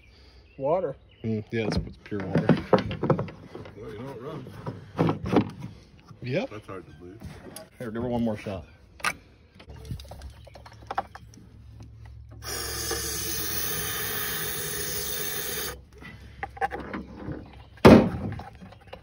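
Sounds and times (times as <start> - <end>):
handling noises: 7.0 - 12.5.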